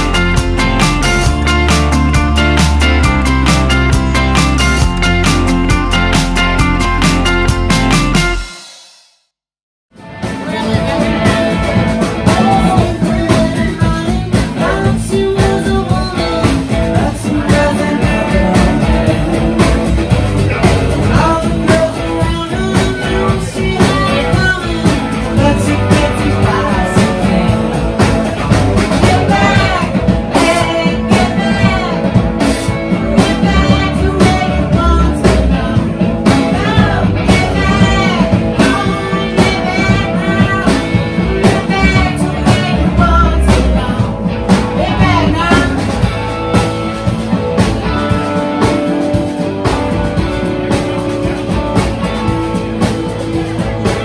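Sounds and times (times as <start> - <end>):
live band playing: 0.0 - 9.1, 9.9 - 54.0
person singing: 10.1 - 46.2.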